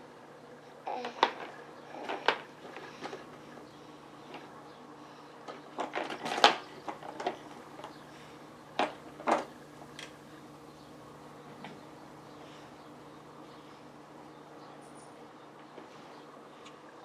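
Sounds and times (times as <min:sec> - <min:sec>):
plastic toys clicking and knocking: 0:00.9 - 0:03.4, 0:05.4 - 0:08.0, 0:08.8 - 0:10.2.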